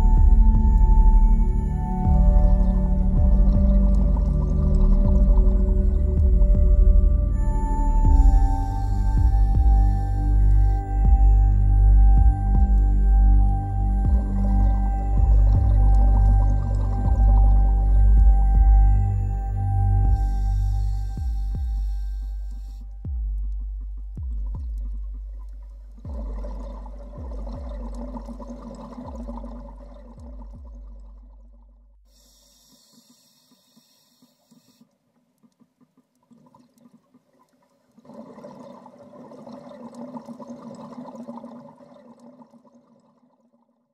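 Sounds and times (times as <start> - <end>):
water bubbling and gushing: 0.0 - 19.1, 24.3 - 31.8, 36.2 - 43.7
low ambient background music: 0.0 - 31.7.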